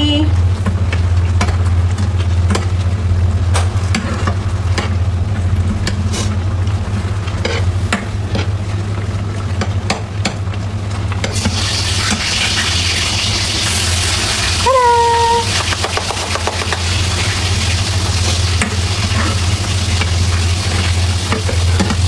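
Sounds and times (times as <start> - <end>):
sauce simmering hiss: 11.2 - 22.0.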